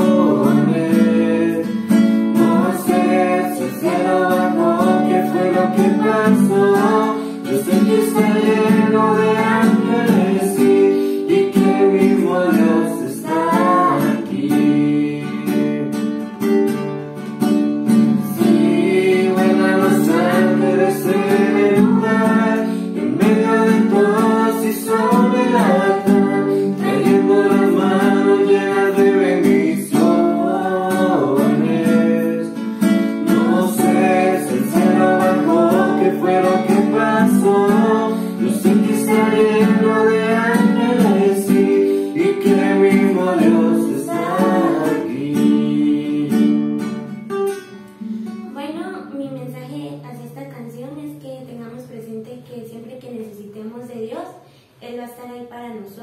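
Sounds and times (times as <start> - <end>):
woman singing: 0.0 - 1.7, 2.3 - 15.2, 18.2 - 32.6, 33.2 - 46.2
classical guitar: 0.0 - 54.3.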